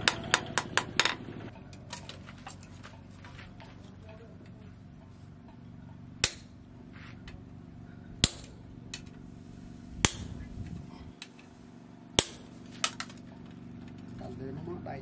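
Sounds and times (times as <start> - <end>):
low hum: 0.0 - 15.0
hammer striking hot steel: 6.2 - 6.6, 8.2 - 9.1, 10.0 - 10.4, 12.2 - 13.0.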